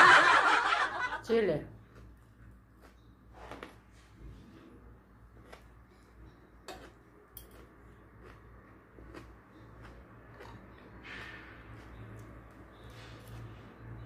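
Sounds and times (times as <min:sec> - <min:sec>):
cutlery scraping a plate: 0:05.4 - 0:07.7.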